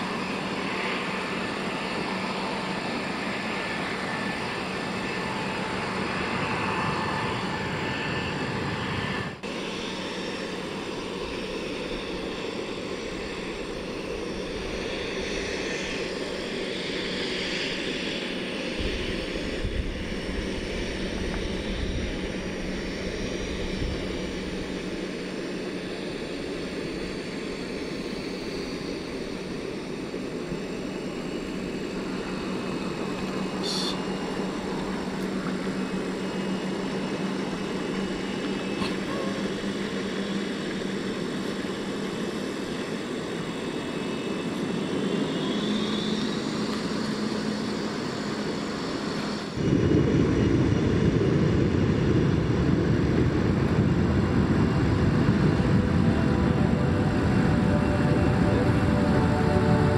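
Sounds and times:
jet engine taxiing: 0:00.0 - 0:59.9
jet engines landing: 0:00.0 - 0:59.9.

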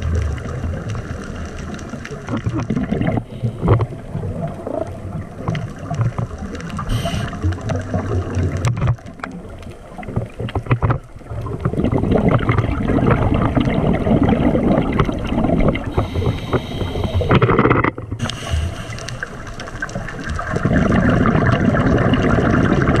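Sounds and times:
exhaled bubbles underwater: 0:00.0 - 0:23.0
regulator inhalation hiss: 0:06.9 - 0:07.5, 0:15.9 - 0:17.4, 0:18.2 - 0:19.6.

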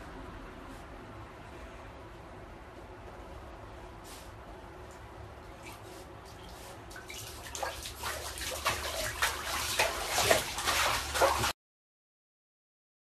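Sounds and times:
low steady hum: 0:00.0 - 0:11.5
bath water splashing: 0:05.6 - 0:11.6.

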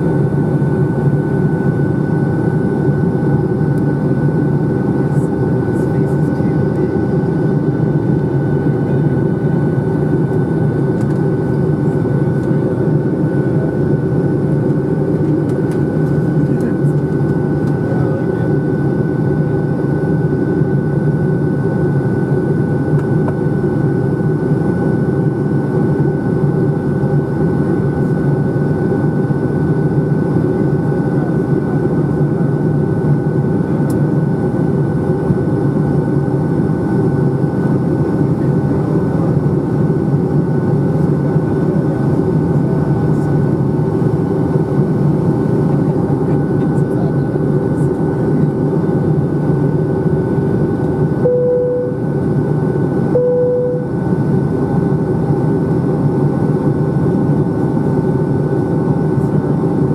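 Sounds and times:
jet engine drone: 0:00.0 - 0:59.9
steady high tone: 0:51.2 - 0:52.2, 0:53.0 - 0:54.2.

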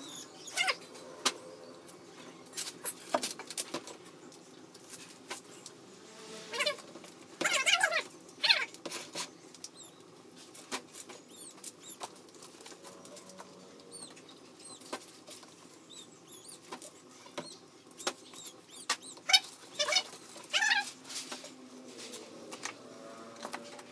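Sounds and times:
short squeaky chirps: 0:11.2 - 0:12.0, 0:13.9 - 0:14.9, 0:15.9 - 0:16.6, 0:17.4 - 0:20.8.

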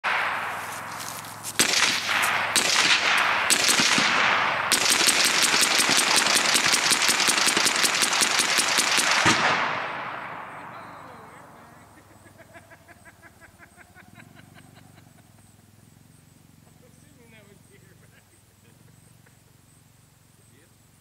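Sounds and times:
rapid gunfire: 0:00.0 - 0:10.7
single gunshots: 0:00.0 - 0:11.9.

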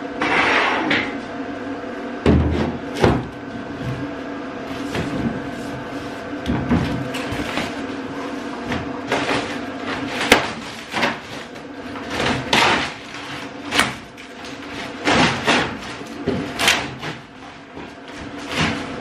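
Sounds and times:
cardboard ripping and rustling: 0:04.7 - 0:19.0.

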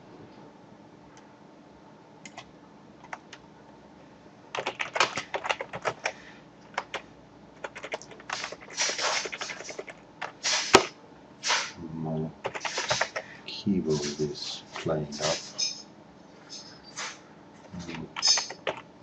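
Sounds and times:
computer keyboard typing: 0:02.2 - 0:03.4, 0:04.5 - 0:07.0, 0:07.6 - 0:10.9, 0:12.4 - 0:13.2, 0:17.8 - 0:18.9.

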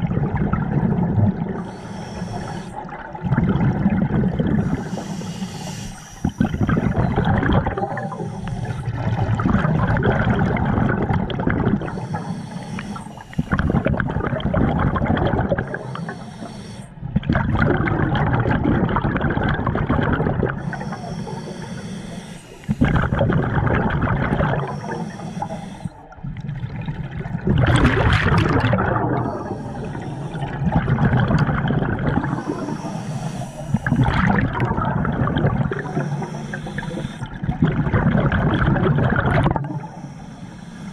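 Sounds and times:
exhaled bubbles underwater: 0:00.0 - 0:40.9
regulator inhale hiss: 0:01.5 - 0:03.0, 0:04.4 - 0:09.4, 0:11.8 - 0:13.9, 0:15.5 - 0:17.0, 0:20.5 - 0:23.5, 0:24.3 - 0:26.2, 0:29.1 - 0:30.8, 0:32.2 - 0:37.4, 0:39.6 - 0:40.9.

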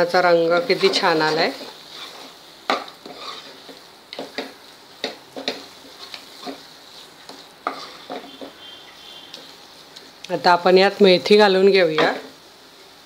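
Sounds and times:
wooden spatula scraping a pan: 0:00.0 - 0:10.0
paste sizzling in oil: 0:00.0 - 0:13.0.

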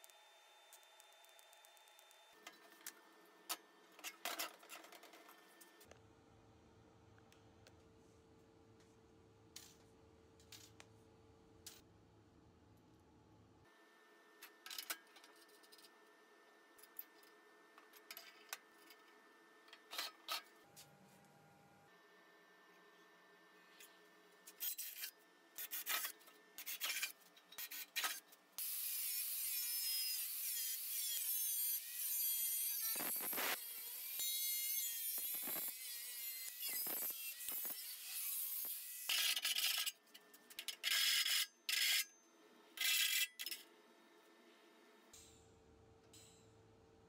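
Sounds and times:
angle grinder cutting steel: 0:28.6 - 0:39.8.

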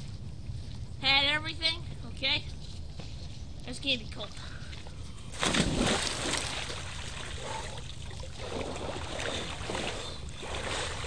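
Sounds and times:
water splashing in a puddle: 0:05.4 - 0:07.4.

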